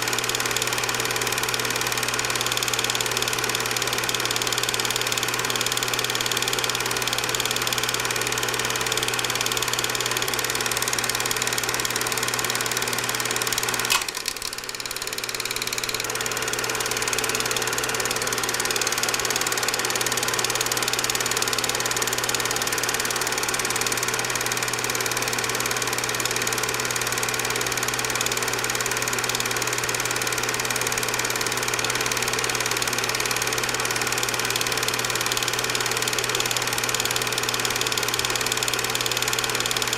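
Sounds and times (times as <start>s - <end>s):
film projector humming and whirring: 0.0s - 39.9s
sharp click: 13.7s - 16.0s.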